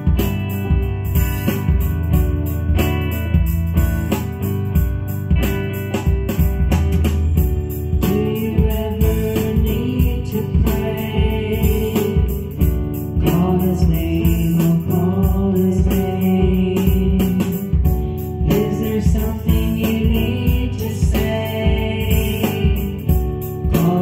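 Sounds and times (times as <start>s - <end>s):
guitar with steady beat: 0.0s - 24.0s
person singing: 7.8s - 24.0s.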